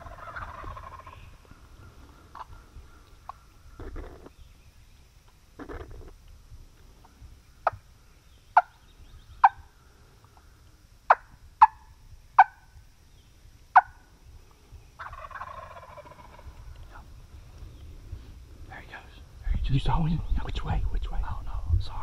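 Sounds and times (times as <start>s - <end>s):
turkey clucks: 0.0s - 4.3s, 5.6s - 6.1s, 7.0s - 7.8s, 8.5s - 8.8s, 9.4s - 10.5s, 11.1s - 12.7s, 13.7s - 14.0s, 15.0s - 16.9s.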